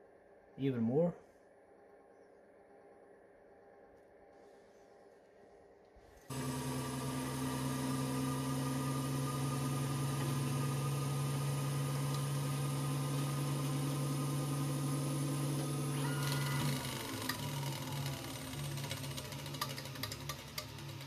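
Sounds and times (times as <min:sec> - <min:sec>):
lathe humming: 0:06.3 - 0:21.0.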